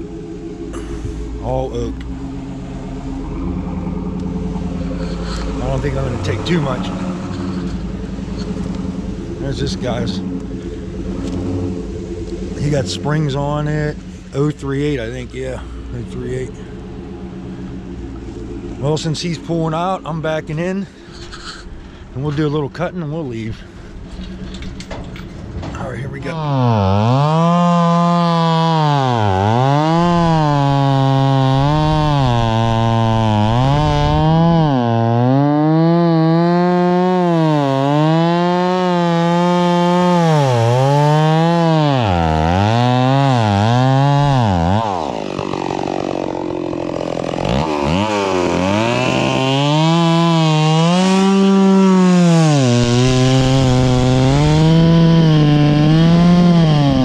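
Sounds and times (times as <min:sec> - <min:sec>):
chainsaw cutting log: 0:04.2 - 0:08.8, 0:26.2 - 0:57.0.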